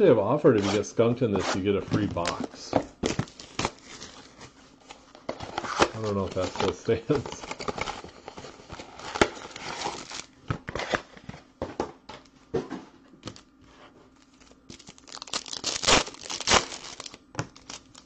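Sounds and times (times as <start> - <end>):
foil wrappers crinkling and tearing: 5.5 - 11.0, 14.2 - 18.0.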